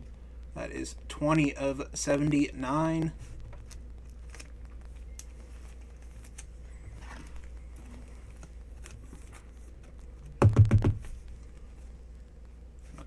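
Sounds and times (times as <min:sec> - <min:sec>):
loud knocks: 0:10.4 - 0:11.0.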